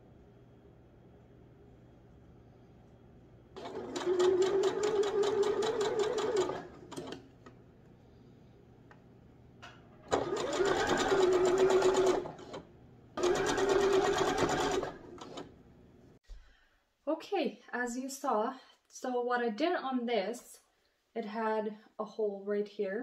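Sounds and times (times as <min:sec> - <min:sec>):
sewing machine stitching: 0:03.6 - 0:07.3, 0:10.1 - 0:15.6.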